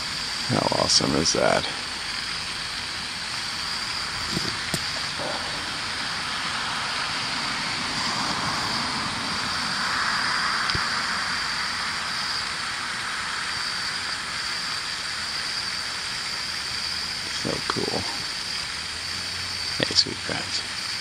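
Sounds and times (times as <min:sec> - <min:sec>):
hiss: 0:00.0 - 0:21.0
wash of noise: 0:00.0 - 0:21.0
high-pitched drone: 0:03.6 - 0:12.6.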